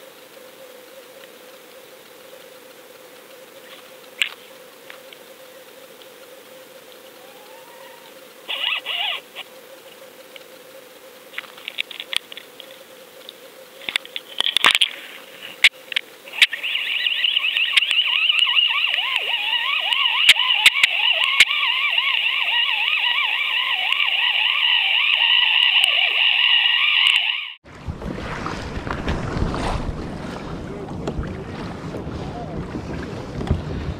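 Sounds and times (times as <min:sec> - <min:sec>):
faint underwater hum: 0:00.0 - 0:25.3, 0:27.7 - 0:33.9
high warbling whine: 0:15.7 - 0:32.8
sharp clicks: 0:15.9 - 0:22.3.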